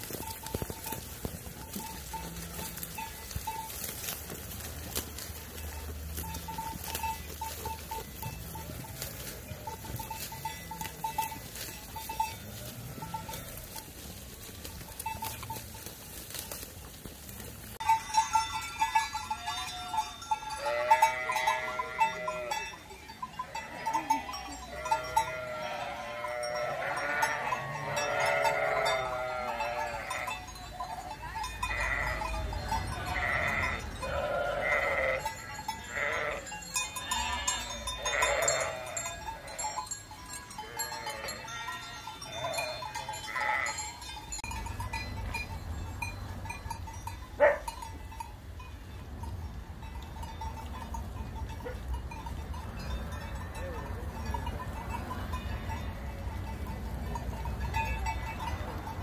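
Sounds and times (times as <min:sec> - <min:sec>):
livestock bells tinkling: 0:00.0 - 0:59.0
sheep bleating: 0:20.5 - 0:22.6, 0:23.4 - 0:30.4, 0:31.7 - 0:39.7, 0:40.6 - 0:43.8.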